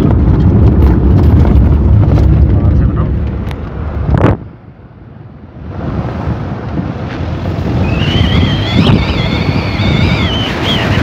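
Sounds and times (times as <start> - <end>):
wind buffeting microphone: 0.0 - 11.0
high wavering whistle: 7.8 - 11.0.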